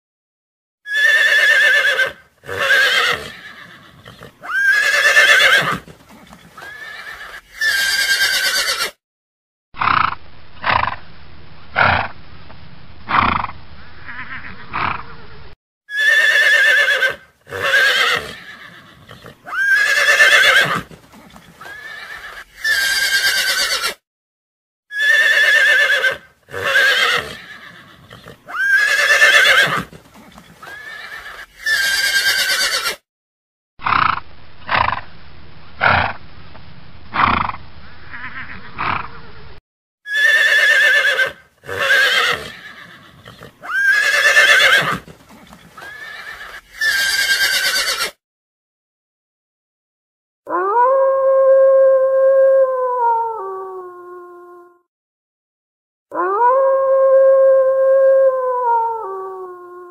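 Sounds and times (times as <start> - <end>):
horses whinnying: 0.9 - 9.0, 14.0 - 15.3, 15.9 - 24.0, 24.9 - 33.0, 37.2 - 39.4, 40.1 - 48.2.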